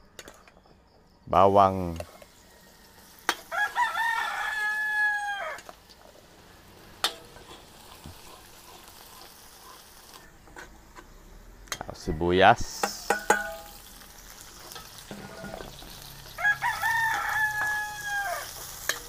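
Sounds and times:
garlic frying in oil: 0:01.8 - 0:12.0, 0:12.6 - 0:19.0
rooster crowing: 0:02.1 - 0:05.7, 0:15.6 - 0:18.8
sharp metal knocks: 0:12.8 - 0:13.6.

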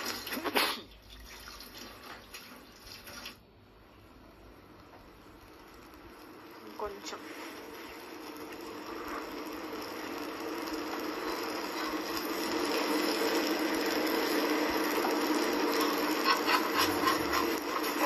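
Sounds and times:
flatbread sizzling on a hot griddle: 0:04.3 - 0:18.0
metal spatula scraping griddle: 0:10.6 - 0:18.0.

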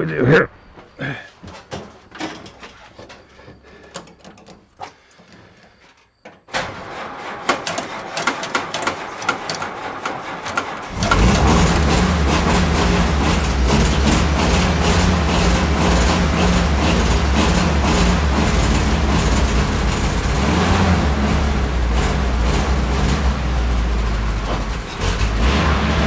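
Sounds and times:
starter motor cranking: 0:06.5 - 0:20.9
engine running loudly: 0:07.1 - 0:26.0.

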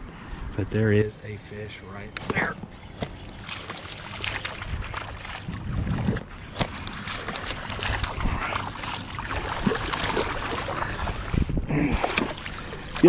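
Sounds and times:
water moving around kayak hull: 0:02.6 - 0:13.0
fish splashing at surface: 0:03.0 - 0:11.3
wind on microphone: 0:04.5 - 0:06.6, 0:07.8 - 0:12.2.

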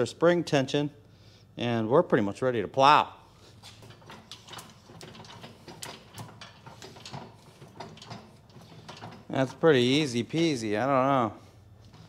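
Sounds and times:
metallic clicks and rattles: 0:03.6 - 0:10.6.

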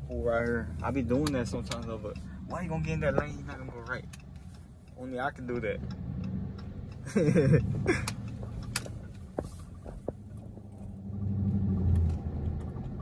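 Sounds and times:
car engine droning in cabin: 0:00.0 - 0:13.0.

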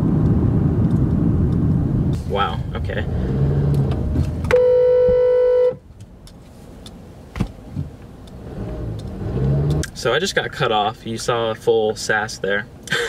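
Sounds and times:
car engine and road noise: 0:00.0 - 0:13.0
car horn blast: 0:04.5 - 0:05.8.

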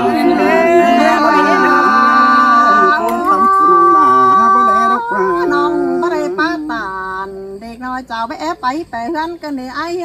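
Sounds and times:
group singing without instruments: 0:00.0 - 0:07.4.

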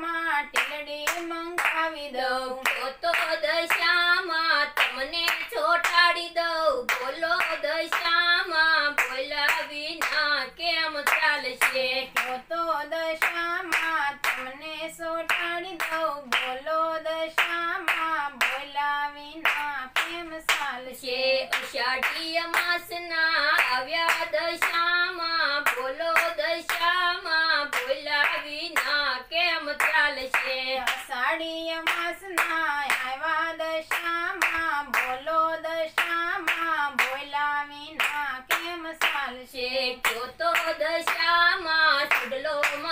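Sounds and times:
woman singing devotional song: 0:00.0 - 0:42.9
hand-clapping: 0:00.5 - 0:12.4, 0:13.2 - 0:18.8, 0:19.4 - 0:20.9, 0:21.5 - 0:39.4, 0:40.0 - 0:42.9.

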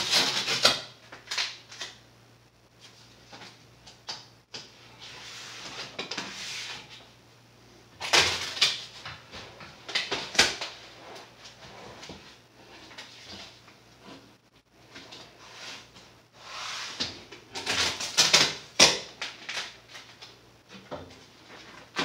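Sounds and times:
faint steady hum: 0:00.0 - 0:22.0
masking tape rustling and scraping: 0:04.7 - 0:07.2.

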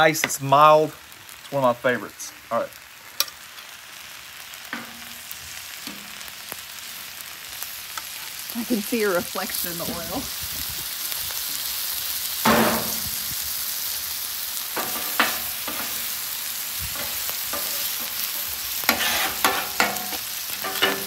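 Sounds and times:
steaks sizzling on griddle: 0:00.0 - 0:21.0.

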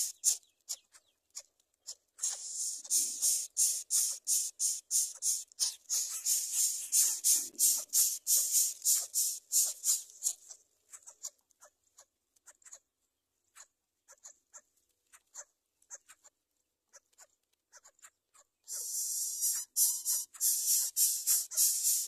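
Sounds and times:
nestlings making hissing begging calls: 0:00.0 - 0:00.4, 0:02.2 - 0:10.5, 0:18.7 - 0:22.0.

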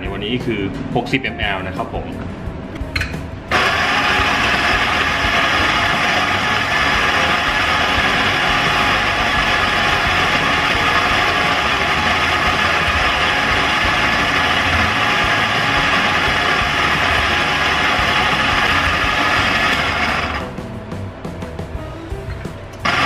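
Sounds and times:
electric coffee grinder grinding: 0:03.5 - 0:20.5.

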